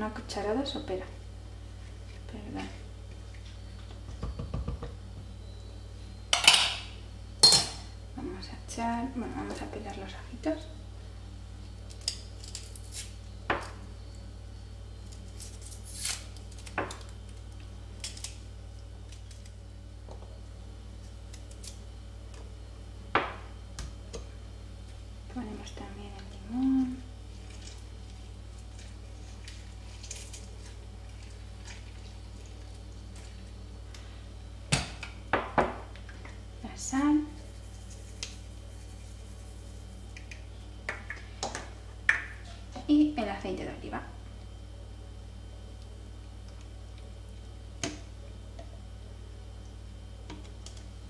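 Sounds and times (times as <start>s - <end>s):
steady low hum: 0.0s - 51.0s
knife scraping garlic skin: 15.4s - 16.3s.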